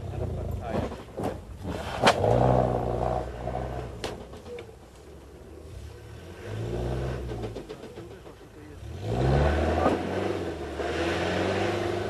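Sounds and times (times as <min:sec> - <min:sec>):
vehicle clunk: 0:07.1 - 0:08.8.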